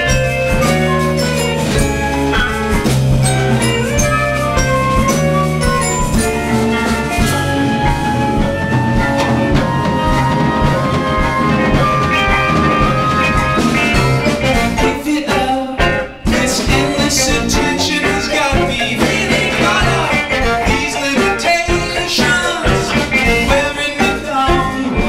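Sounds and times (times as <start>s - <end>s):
vibraphone notes: 0.0s - 15.0s
bass: 0.0s - 25.0s
drums: 0.0s - 25.0s.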